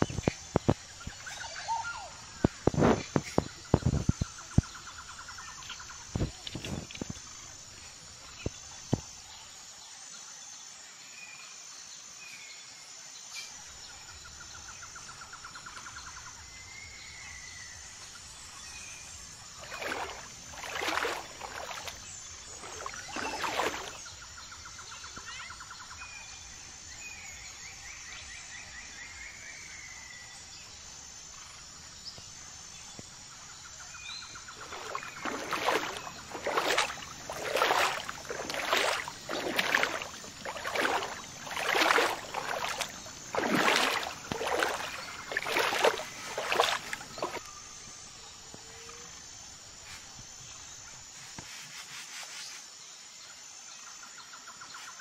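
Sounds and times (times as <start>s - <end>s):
faint chirping calls: 19.5s - 26.0s, 33.7s - 49.0s
fish splashing in water: 19.6s - 24.0s, 34.5s - 47.5s.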